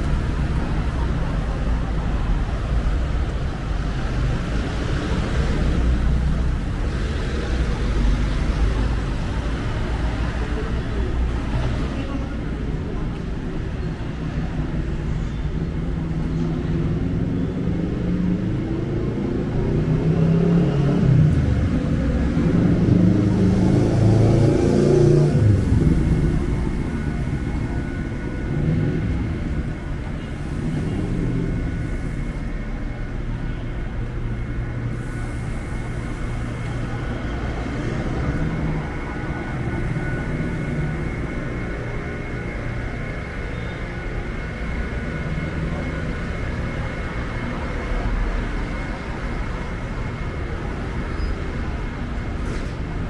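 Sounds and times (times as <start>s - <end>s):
traffic rumble: 0.0s - 53.0s
vehicle passing close by: 18.5s - 29.5s.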